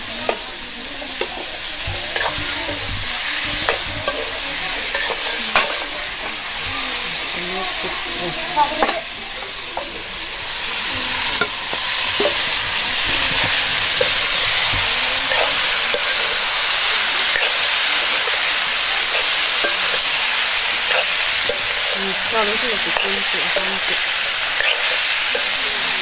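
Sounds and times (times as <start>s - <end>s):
vegetables sizzling in a wok: 0.0s - 26.0s
metal ladle scraping a wok: 2.1s - 6.6s, 9.8s - 26.0s.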